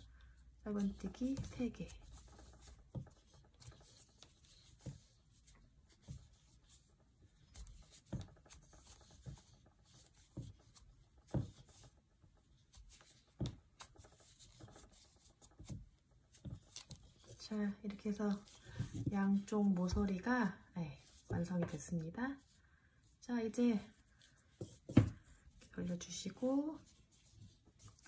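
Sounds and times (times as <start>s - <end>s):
yarn rubbing through loops: 0.0s - 20.3s.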